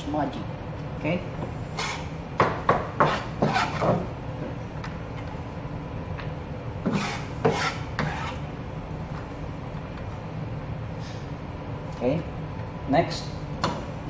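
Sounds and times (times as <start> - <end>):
knife slicing onion on cutting board: 1.8 - 4.1, 6.8 - 8.4.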